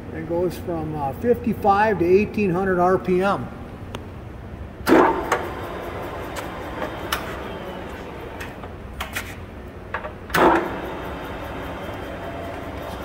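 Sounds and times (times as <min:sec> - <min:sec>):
loud metallic clunk: 0:04.8 - 0:05.6, 0:10.3 - 0:10.9
lathe humming: 0:04.9 - 0:08.9, 0:10.4 - 0:13.0.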